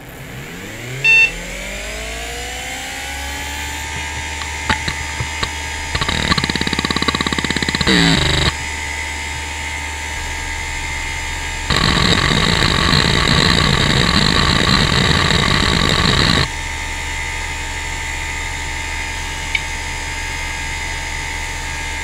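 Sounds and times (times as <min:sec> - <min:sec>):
hard drive whine: 0:00.0 - 0:22.0
hard drive seek chatter: 0:03.6 - 0:09.8, 0:11.7 - 0:16.5
hard drive head-seek ticks: 0:03.8 - 0:08.8, 0:11.7 - 0:16.5.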